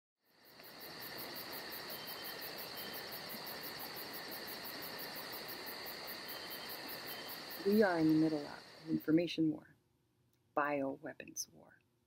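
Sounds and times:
crickets trilling: 0:00.2 - 0:09.2.

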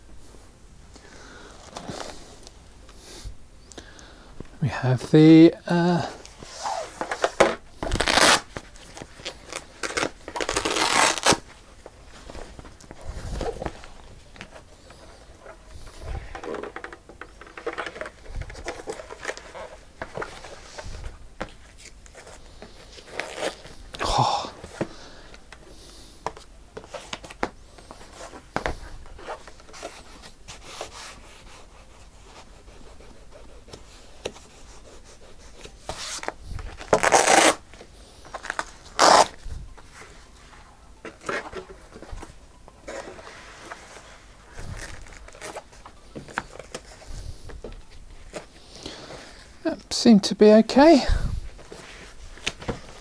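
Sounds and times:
fabric rubbing and rustling: 0:06.3 - 0:24.0, 0:26.8 - 0:49.6, 0:51.2 - 0:53.0.

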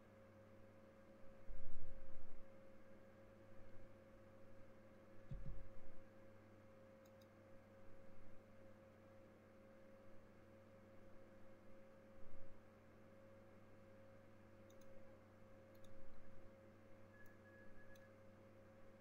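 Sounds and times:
faint electrical hum: 0:00.0 - 0:19.0
computer mouse clicks: 0:07.0 - 0:07.4, 0:14.6 - 0:15.0, 0:15.7 - 0:16.1, 0:17.2 - 0:18.1.

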